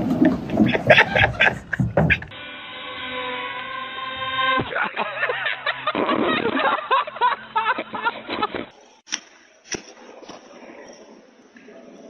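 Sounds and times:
excited laughter and exclaiming: 0:00.6 - 0:02.2, 0:04.6 - 0:08.5
sharp knocks: 0:00.6 - 0:02.3
model airplane motor drone: 0:02.3 - 0:05.0.

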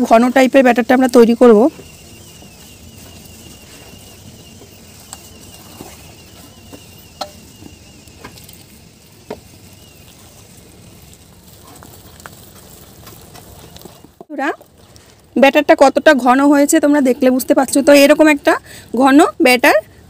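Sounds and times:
wet batter stirring: 0:00.0 - 0:14.3.

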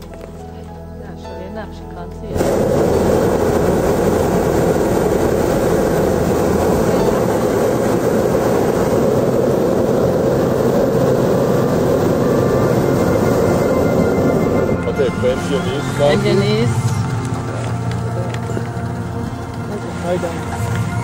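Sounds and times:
propane burner blast: 0:02.3 - 0:21.0.

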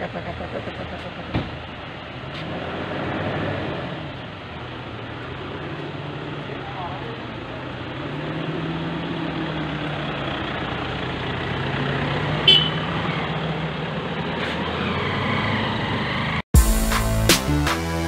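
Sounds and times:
car horn toot: 0:12.4 - 0:12.9.

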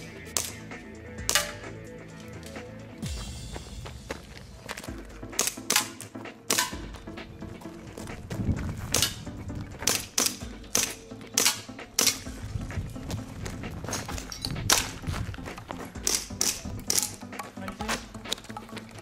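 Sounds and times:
background music: 0:00.0 - 0:19.0
airsoft pistol shots: 0:01.2 - 0:01.7, 0:05.4 - 0:06.8, 0:09.8 - 0:12.3, 0:16.0 - 0:17.2.

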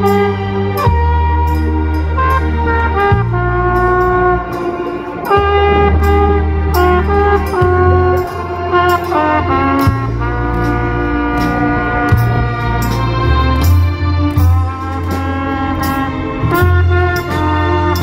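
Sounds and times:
deep bass: 0:00.0 - 0:18.0
drums: 0:00.0 - 0:18.0
trumpet melody: 0:00.0 - 0:18.0.

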